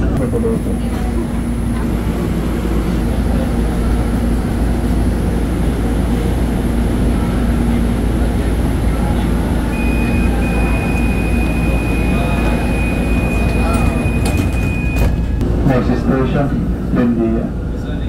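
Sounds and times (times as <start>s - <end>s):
steady high tone: 0.0s - 16.3s
low carriage hum: 0.0s - 18.0s
train running rumble: 0.0s - 18.0s.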